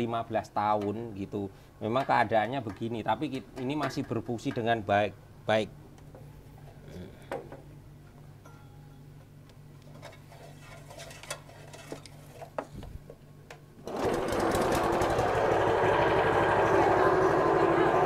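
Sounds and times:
stone grinder rattling grind: 10.3s - 12.4s, 13.9s - 15.9s
grinder low hum: 13.8s - 18.0s.

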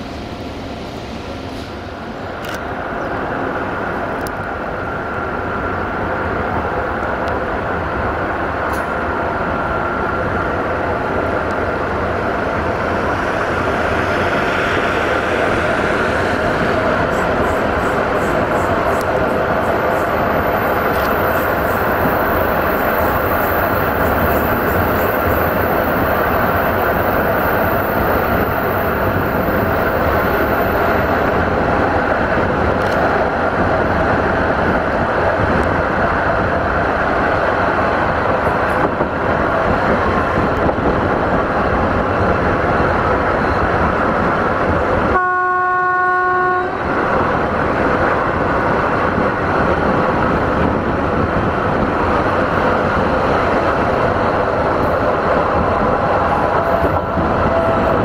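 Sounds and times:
train wheels and rails rushing: 0.0s - 58.0s
locomotive horn: 45.1s - 46.9s.

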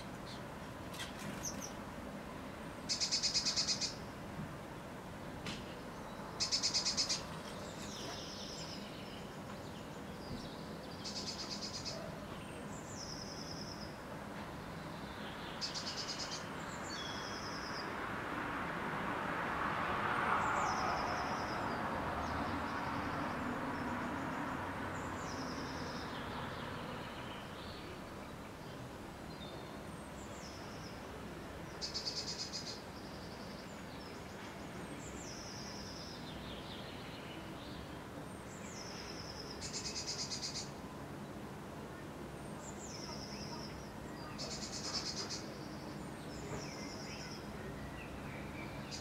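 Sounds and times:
bird singing: 2.9s - 4.0s, 5.8s - 14.0s, 14.6s - 17.9s, 31.7s - 40.8s, 42.5s - 49.0s.

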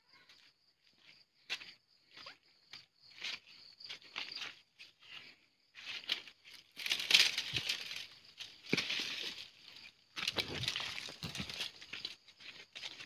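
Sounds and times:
footsteps on dirt path: 0.0s - 13.0s
brush rustling and crackling: 3.2s - 13.0s.

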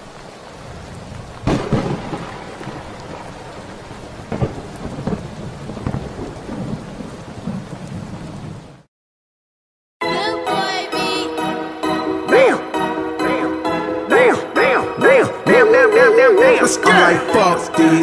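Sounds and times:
rain hiss: 0.0s - 8.9s
thunder claps: 0.0s - 8.9s.

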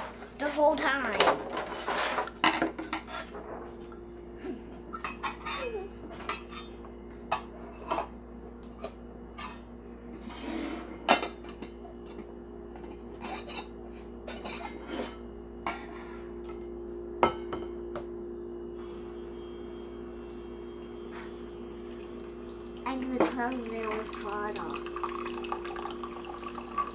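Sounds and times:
water running from faucet: 19.6s - 26.9s.

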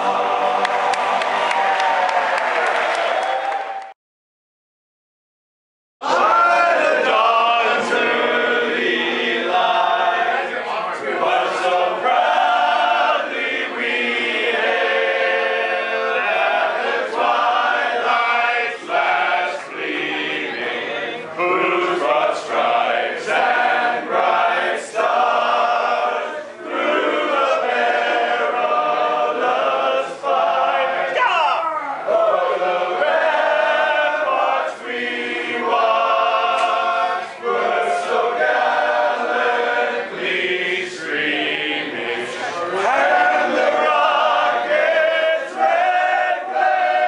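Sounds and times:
men singing a cappella: 6.2s - 31.2s, 32.2s - 47.0s.

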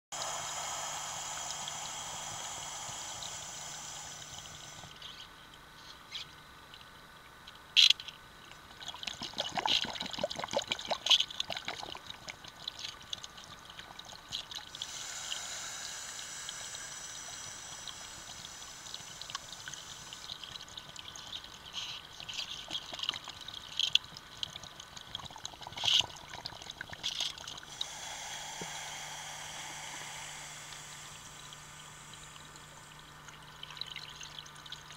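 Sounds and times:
exhaust bubbles crackling: 0.1s - 5.1s, 13.7s - 21.6s, 24.4s - 34.9s
scuba breathing hiss: 0.1s - 5.2s, 14.7s - 20.8s, 27.6s - 33.1s.

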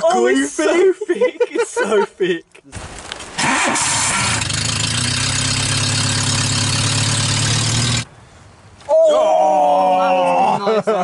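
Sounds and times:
car engine idling: 3.3s - 8.2s.

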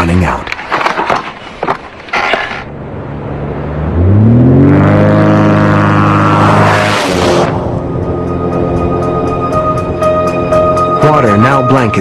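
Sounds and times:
vehicle engine revving: 2.7s - 8.2s.

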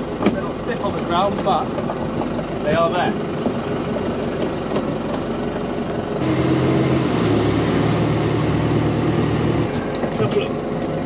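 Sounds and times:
motor boat engine running: 0.0s - 11.0s
rushing noise: 6.2s - 9.7s.

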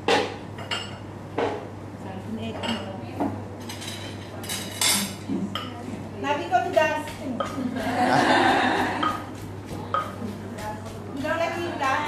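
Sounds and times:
wooden pestle knocking in mortar: 6.6s - 12.0s.

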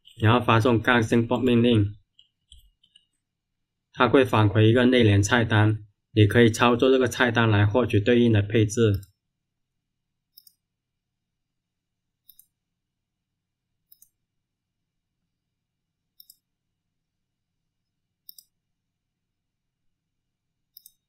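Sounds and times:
computer mouse button clicks: 10.3s - 10.6s, 18.2s - 18.6s, 20.7s - 21.0s.

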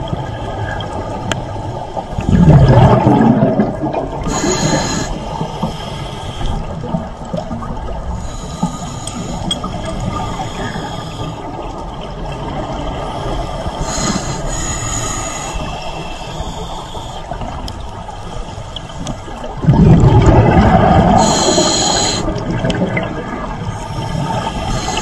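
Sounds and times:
exhaled bubbles rushing: 0.0s - 8.5s, 9.5s - 13.1s, 19.3s - 25.0s
diver inhaling through regulator: 4.2s - 6.8s, 8.2s - 11.6s, 12.9s - 17.4s, 20.8s - 22.4s, 23.8s - 25.0s.

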